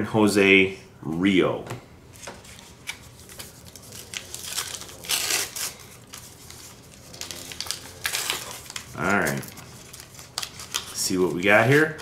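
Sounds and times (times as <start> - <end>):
foil wrapper crinkling and tearing: 2.8 - 12.0.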